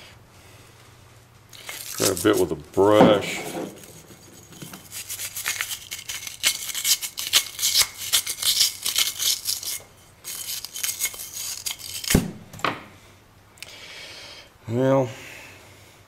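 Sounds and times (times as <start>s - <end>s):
brush scrubbing rusty metal: 3.2s - 12.1s.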